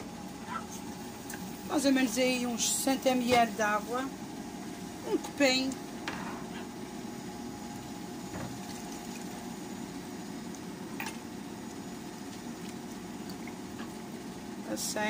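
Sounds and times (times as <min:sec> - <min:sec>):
steady low hum: 0:00.0 - 0:15.0
stew bubbling and sloshing: 0:10.2 - 0:14.6.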